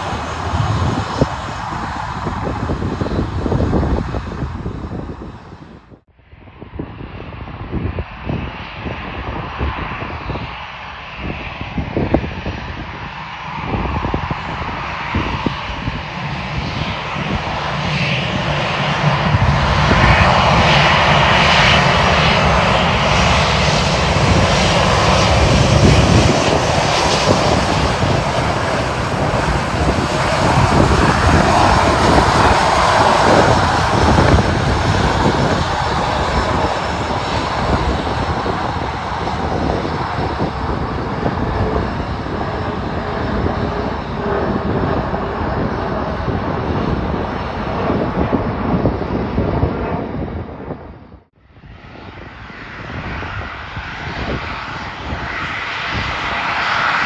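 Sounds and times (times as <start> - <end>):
jet engines taxiing: 0.0 - 5.8, 6.4 - 57.0.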